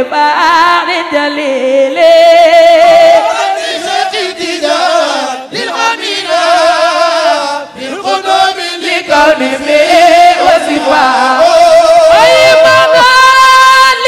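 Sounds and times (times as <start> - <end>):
person chanting a devotional song: 4.2 - 14.0.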